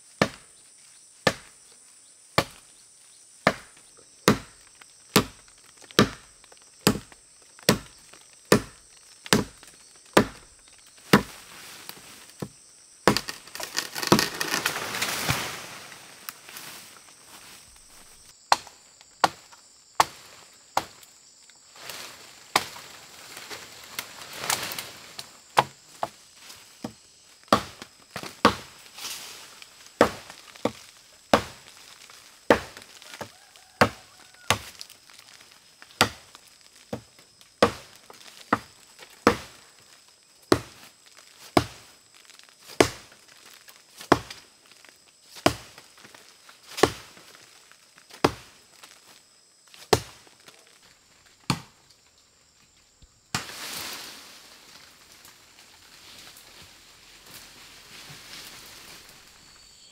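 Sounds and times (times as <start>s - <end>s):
axe chopping wood: 0.2s - 0.5s, 1.2s - 1.6s, 2.4s - 2.6s, 3.4s - 5.4s, 6.0s - 11.4s, 12.4s - 14.6s, 18.5s - 20.2s, 26.8s - 28.7s, 30.0s - 31.7s, 32.5s - 33.2s, 33.8s - 35.4s, 36.0s - 36.3s, 37.6s - 39.6s, 40.5s - 40.8s, 41.6s - 41.9s, 42.7s - 43.1s, 44.0s - 44.4s, 45.4s - 45.8s, 46.8s - 47.1s, 48.2s - 48.5s, 49.9s - 50.2s, 51.5s - 51.8s.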